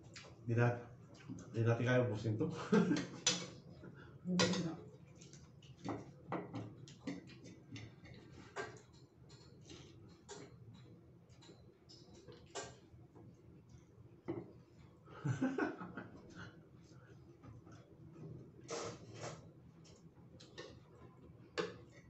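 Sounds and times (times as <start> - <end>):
cutlery clicking on ceramic plates: 3.0 - 3.6, 4.4 - 4.6, 20.4 - 20.8
chewing and mouth noises: 4.9 - 14.0.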